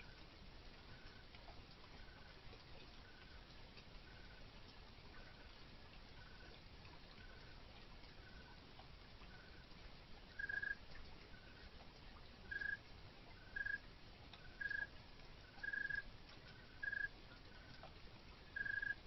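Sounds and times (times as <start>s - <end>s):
faint steady hiss: 0.0s - 19.0s
fainter animal chirping: 10.4s - 10.8s, 12.5s - 12.8s, 13.6s - 13.8s, 14.6s - 14.9s, 15.6s - 16.0s, 16.8s - 17.1s, 18.6s - 19.0s
animal chirping: 12.5s - 12.8s, 16.8s - 17.1s, 18.6s - 19.0s.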